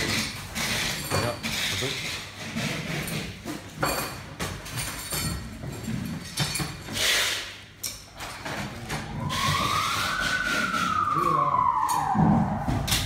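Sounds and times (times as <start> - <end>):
siren wailing: 8.8 - 13.0.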